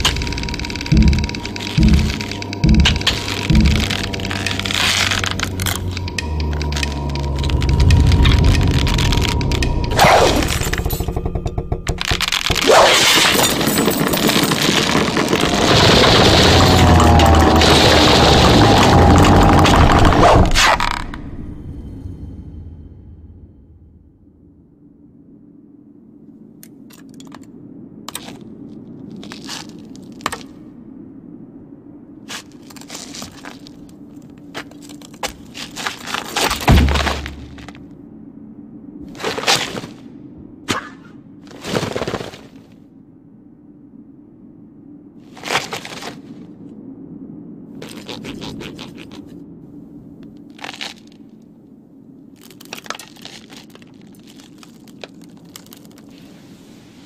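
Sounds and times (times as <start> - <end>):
low steady drone: 0.0 - 12.9, 15.3 - 26.8
sudden crashes: 0.0 - 24.4, 36.5 - 37.9
body scraping over rough ground: 32.2 - 37.8, 39.1 - 40.2, 41.4 - 42.8, 45.2 - 46.6
body thudding onto ground: 36.4 - 37.8.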